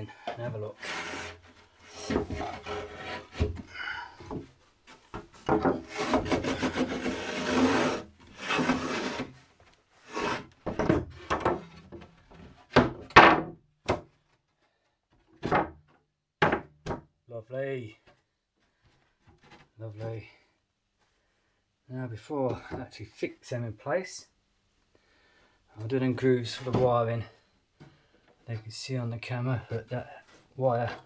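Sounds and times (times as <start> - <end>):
wood scraping against wood: 0.0 - 13.0, 29.7 - 31.0
sharp wooden knocks: 5.1 - 6.8, 10.6 - 11.8, 16.4 - 17.1.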